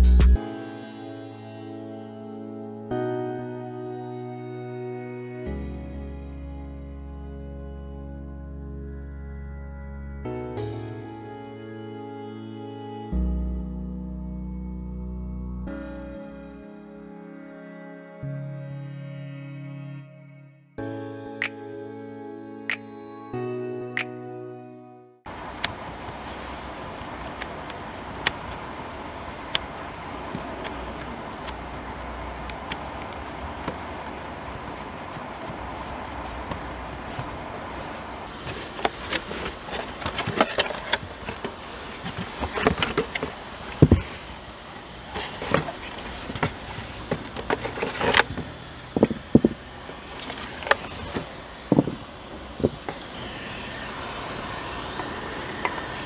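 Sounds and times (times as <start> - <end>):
steady background noise: 25.3 - 56.0
plastic parts knocking and rustling: 38.3 - 44.2, 45.0 - 52.0
cardboard box opening: 38.3 - 52.0.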